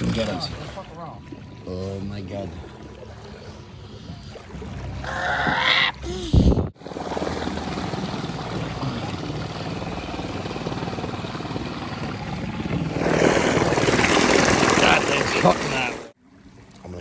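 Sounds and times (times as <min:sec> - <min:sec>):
water rushing past hull: 0:00.0 - 0:17.0
electric trolling motor humming: 0:06.8 - 0:16.1.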